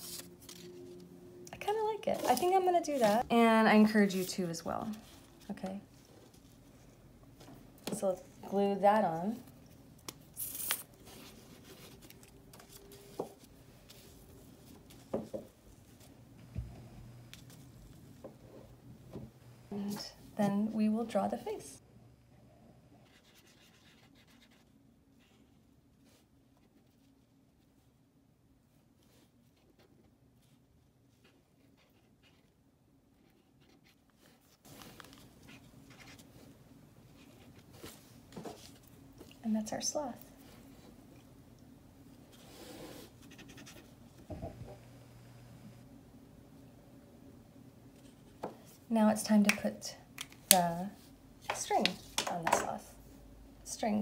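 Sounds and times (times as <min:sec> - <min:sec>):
marker scratching on paper: 0:23.0 - 0:24.6.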